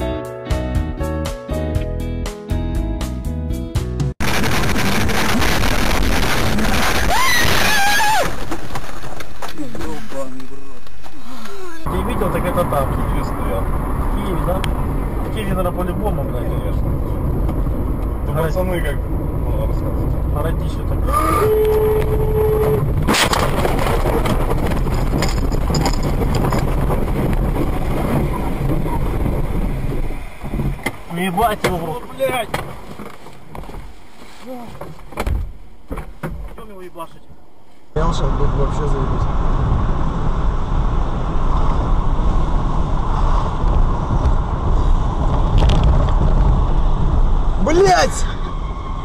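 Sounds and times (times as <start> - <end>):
car engine and road noise: 1.5 - 49.0
car crash impact: 4.2 - 10.0, 22.9 - 33.0
rough rumbling and clattering: 4.2 - 37.2, 38.1 - 49.0.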